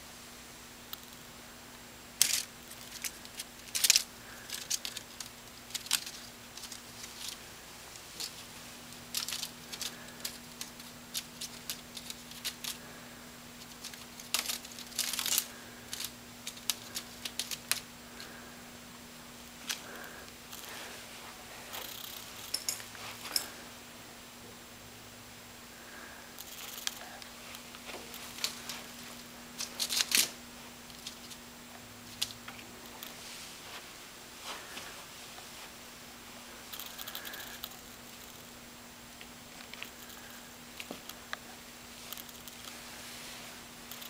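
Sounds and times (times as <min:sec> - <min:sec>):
kitten claws scratching wicker: 0:02.2 - 0:07.4, 0:08.0 - 0:12.8, 0:13.6 - 0:17.8, 0:26.4 - 0:31.4.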